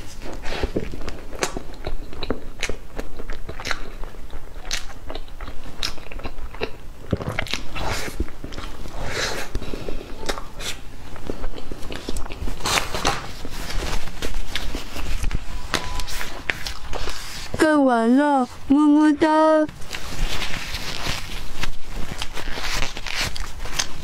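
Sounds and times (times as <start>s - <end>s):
chewing and lip smacks: 0.4s - 8.8s, 10.2s - 13.2s.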